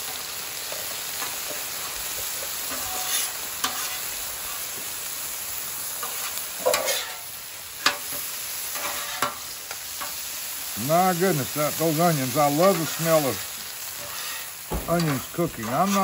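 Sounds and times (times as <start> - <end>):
vegetables sizzling on griddle: 0.0 - 16.0
metal spatulas scraping griddle: 2.6 - 4.6, 6.0 - 10.2, 13.9 - 16.0.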